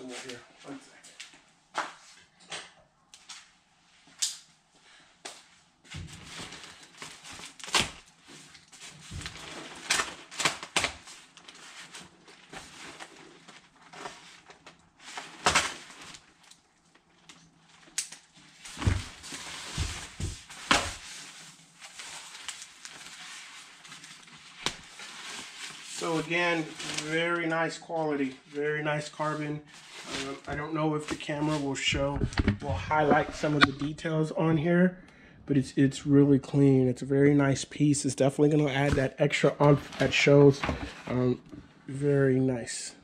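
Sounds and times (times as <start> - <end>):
plastic wrap crinkling: 6.2 - 33.8.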